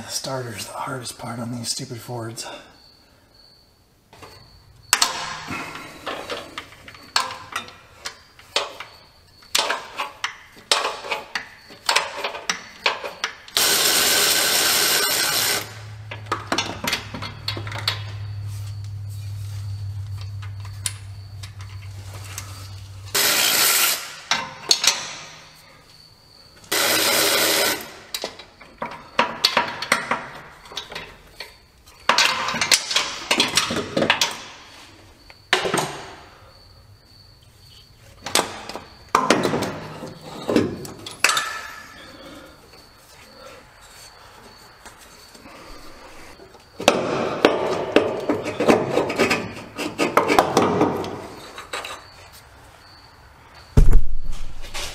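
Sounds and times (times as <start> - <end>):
hand tools clanking on metal: 38.2 - 42.5.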